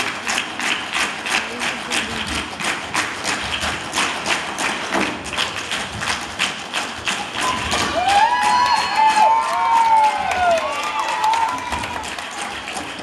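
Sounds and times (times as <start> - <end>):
dancers tapping and stomping: 0.0 - 13.0.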